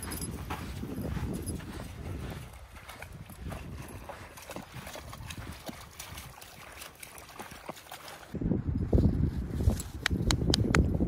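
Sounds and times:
lake water splashing and lapping: 0.0 - 8.4.

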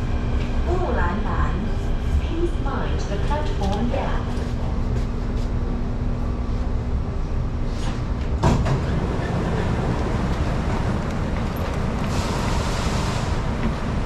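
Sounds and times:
train noise: 0.0 - 14.0
train doors sliding open: 7.7 - 14.0.

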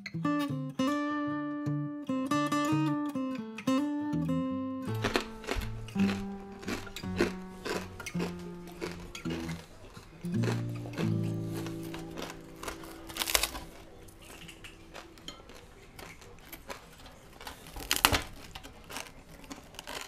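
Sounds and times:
music chord: 10.3 - 14.8.

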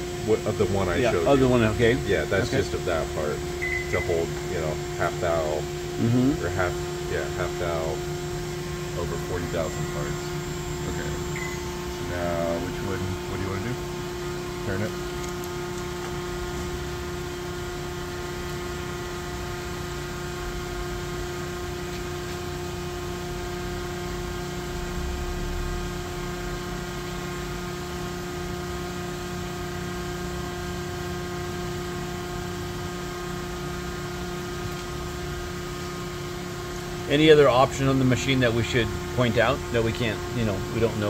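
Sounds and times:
machine tool humming: 0.0 - 29.7.

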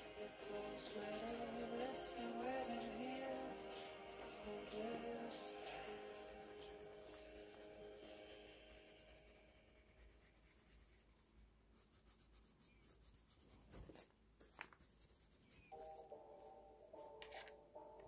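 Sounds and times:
colored pencil scratching on paper: 0.0 - 17.5.

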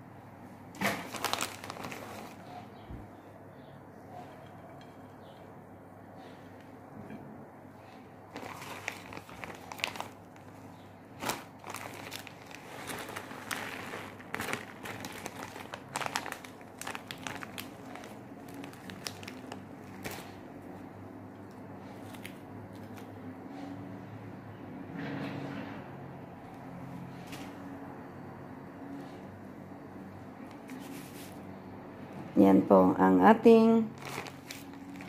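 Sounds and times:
handling noise crinkling: 0.8 - 2.6, 8.3 - 20.5, 30.4 - 31.4, 33.9 - 35.0.

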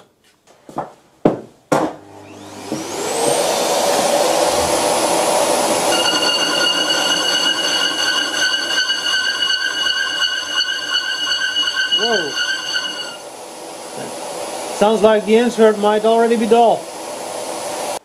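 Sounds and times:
lathe motor whining: 2.0 - 14.9
shop vacuum rushing: 2.0 - 18.0
high ringing of metal cutting: 5.0 - 13.4.

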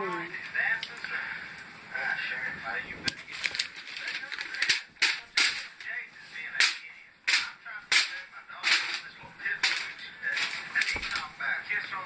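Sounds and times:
paper rustling and crackling: 3.0 - 11.8.

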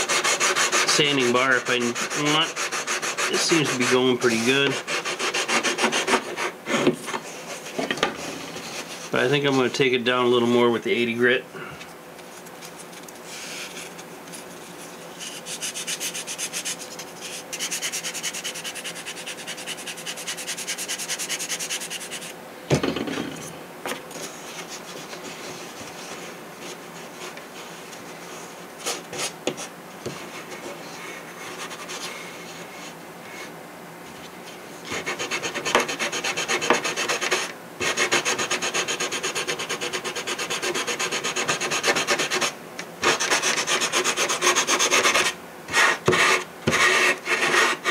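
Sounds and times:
sandpaper scratching wood: 0.0 - 6.8, 15.2 - 22.3, 28.8 - 32.2, 34.9 - 47.9.

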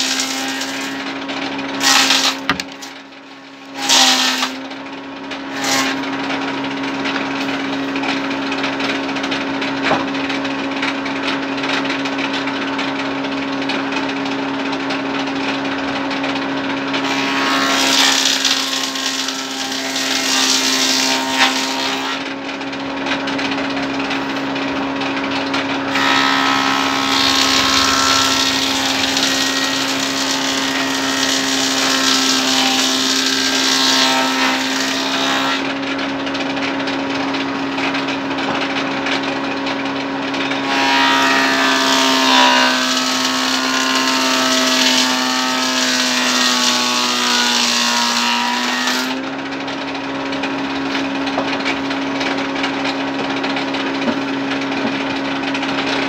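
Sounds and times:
band saw humming: 0.0 - 10.3, 17.0 - 22.3, 23.2 - 35.9, 40.6 - 49.4
band saw cutting timber: 0.0 - 10.4, 16.0 - 22.4, 23.0 - 35.9, 40.4 - 49.5.

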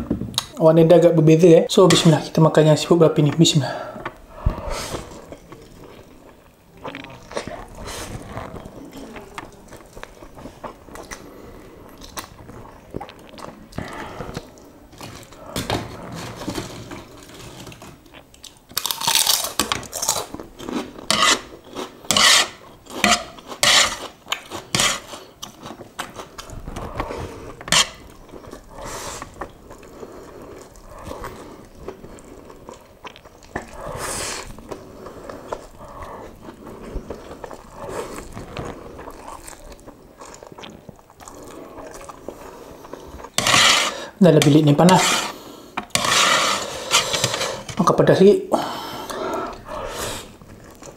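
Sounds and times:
crunching cracker bites: 17.0 - 21.0
slurping noodles: 20.8 - 44.2, 44.8 - 47.8.

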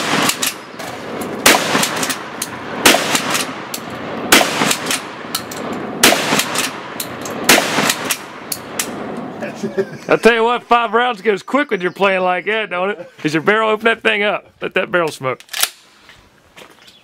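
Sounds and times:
shotgun blasts: 0.0 - 9.3.

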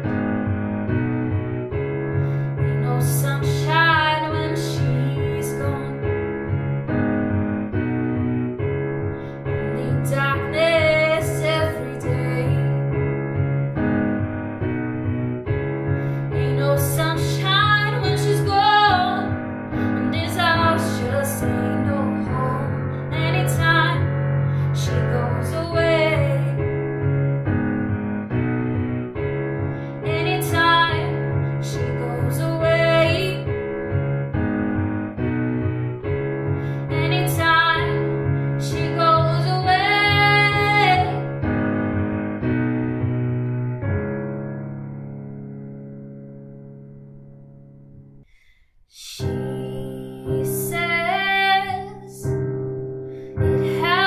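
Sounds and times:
digital piano chords: 0.0 - 48.3, 49.1 - 54.0
woman singing slow song: 2.7 - 6.0, 9.6 - 12.8, 16.4 - 24.1, 24.8 - 26.6, 30.1 - 33.5, 36.9 - 38.0, 38.6 - 41.2, 49.0 - 52.3, 53.4 - 54.0.

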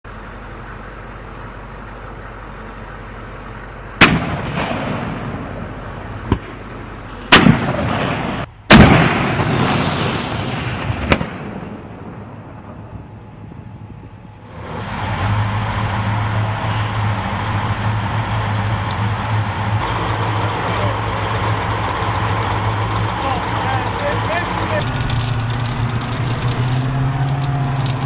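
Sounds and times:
mortar shots with rumbling echo: 4.0 - 12.9.

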